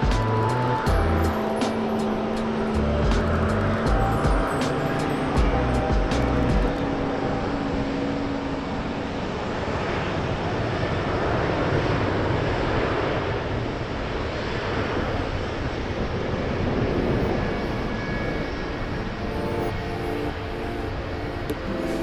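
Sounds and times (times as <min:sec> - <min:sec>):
low hum: 0:00.0 - 0:11.2
jet engines roaring: 0:00.0 - 0:22.0.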